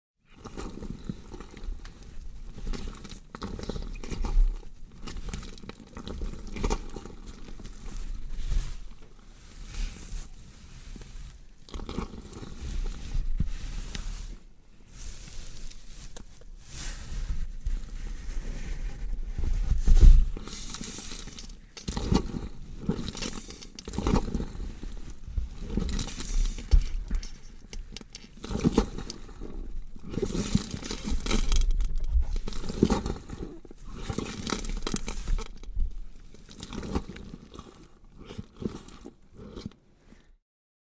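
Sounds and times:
wet meat tearing and crunching: 2.4 - 8.0, 30.0 - 39.8.

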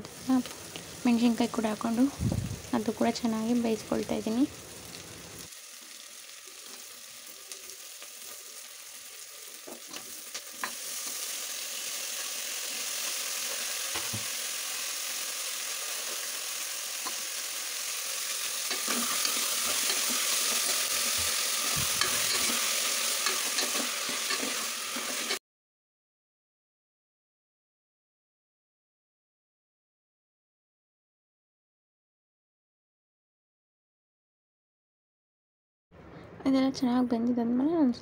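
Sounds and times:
vegetables sizzling in hot oil: 0.0 - 25.4.

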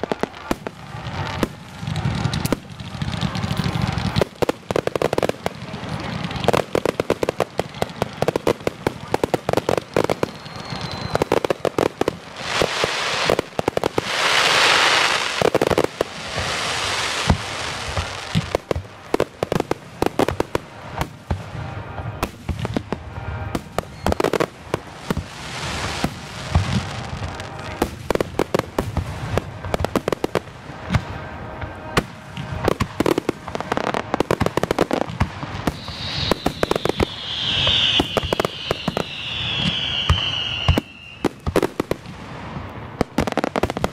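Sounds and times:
firework crackling: 0.0 - 43.9
firework whistle falling in pitch: 10.1 - 11.6, 35.6 - 41.4
firework shell bursts: 35.7 - 41.1.

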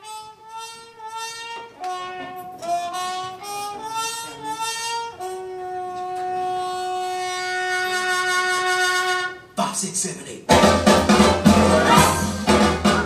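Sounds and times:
violin melody: 10.5 - 13.0.

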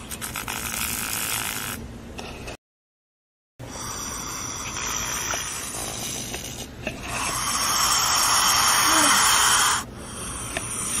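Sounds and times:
snake hissing loudly: 3.7 - 11.0.

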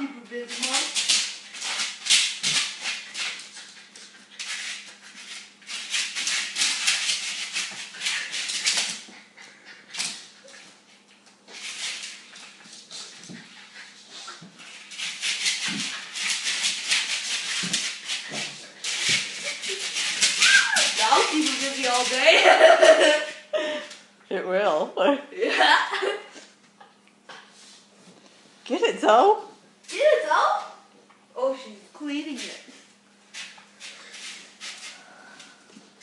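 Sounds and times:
dog claws scratching mat: 0.3 - 23.2, 33.3 - 35.0.

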